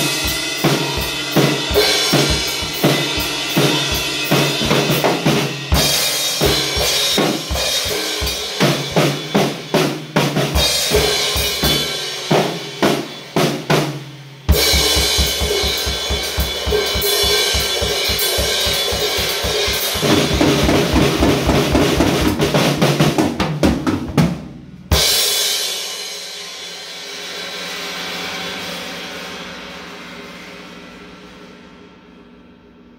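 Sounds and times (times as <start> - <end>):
drum kit playing: 0.0 - 32.5.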